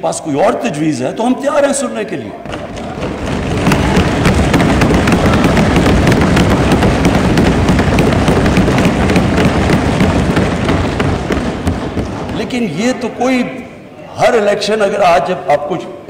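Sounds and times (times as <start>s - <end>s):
people thumping desks and clapping: 2.4s - 12.8s.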